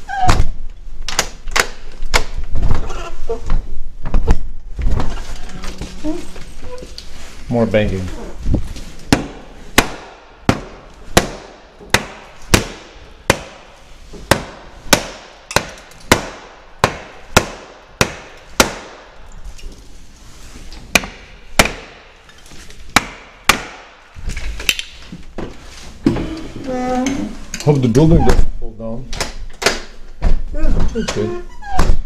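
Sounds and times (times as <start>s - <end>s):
hammer striking wood: 9.1s - 19.1s, 20.9s - 22.1s, 22.9s - 23.9s.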